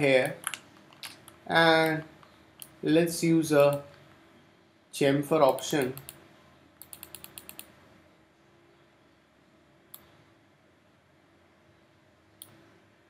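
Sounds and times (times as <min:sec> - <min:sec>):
sharp click: 0:06.8 - 0:07.7.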